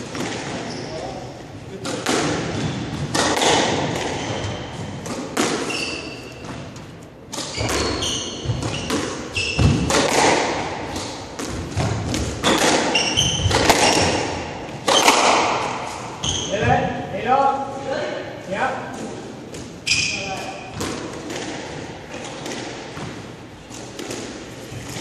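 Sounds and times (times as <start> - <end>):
racquets striking squash ball: 0.0 - 17.0, 18.8 - 25.0
shoes squeaking on hardwood floor: 0.6 - 1.2, 5.6 - 10.0, 12.4 - 14.2, 16.2 - 16.8, 19.8 - 20.8.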